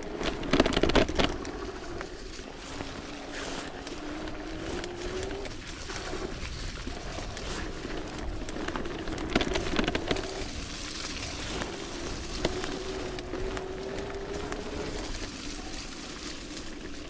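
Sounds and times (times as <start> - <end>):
bike knocks and rattles: 0.0 - 2.0, 6.8 - 15.3
electric bike motor whining: 0.0 - 17.0
tyres on trail: 0.0 - 17.0.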